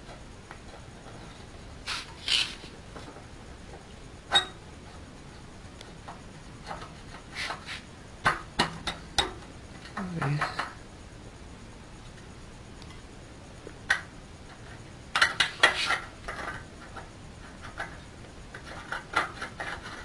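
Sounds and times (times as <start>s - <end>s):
metal scraping: 1.8s - 2.7s.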